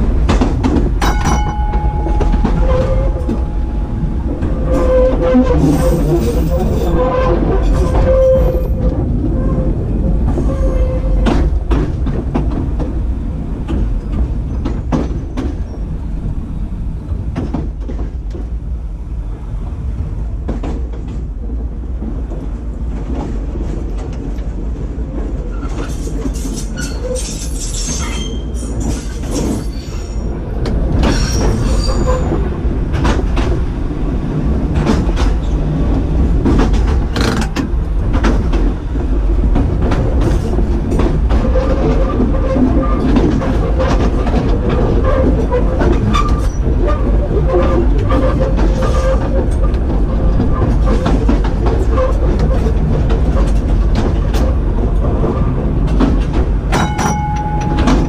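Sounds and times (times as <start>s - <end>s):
tram rumbling along track: 0.0s - 58.0s
high wheel squeal: 1.4s - 8.8s, 31.1s - 32.3s
wheels clicking over rail: 36.4s - 38.7s.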